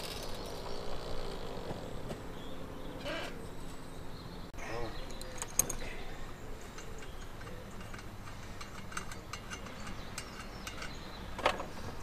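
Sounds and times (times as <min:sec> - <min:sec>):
metallic clicks of brass fittings: 0:06.8 - 0:11.6.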